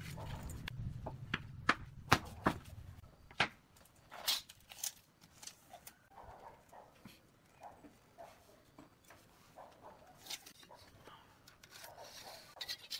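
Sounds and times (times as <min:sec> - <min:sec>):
wooden boards knocking on concrete: 0:01.0 - 0:02.7.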